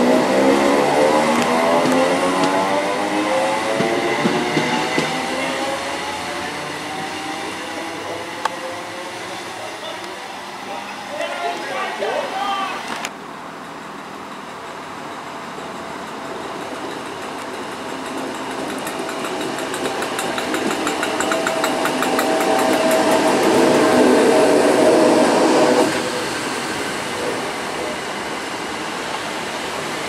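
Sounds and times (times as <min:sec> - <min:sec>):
train wheels clicking on rails: 0:00.0 - 0:10.2, 0:11.2 - 0:30.0
train electric hum: 0:00.0 - 0:30.0.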